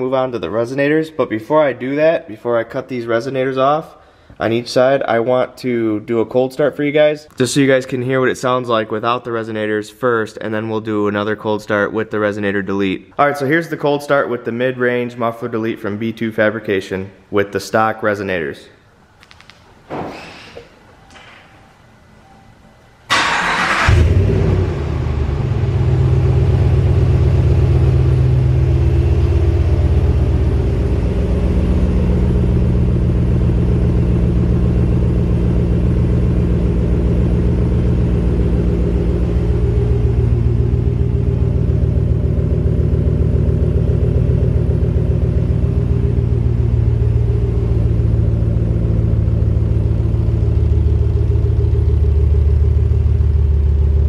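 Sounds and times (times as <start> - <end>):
starter whir: 23.1 - 24.7
engine revving and idling: 23.3 - 54.0.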